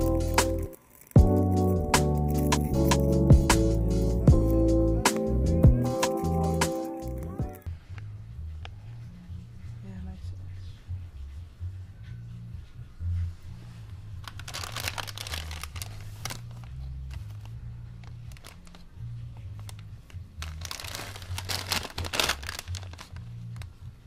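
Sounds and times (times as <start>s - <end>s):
foil snack bag crinkling: 0.0s - 3.0s, 14.2s - 18.9s, 19.6s - 23.8s
background music with bass beat: 0.0s - 8.2s.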